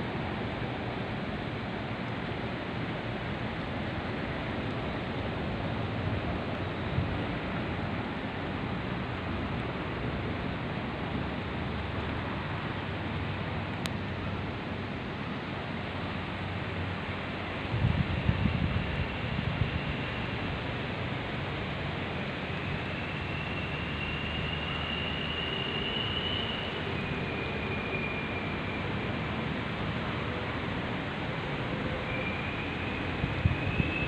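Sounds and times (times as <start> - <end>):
wind rustling through trees: 0.0 - 34.0.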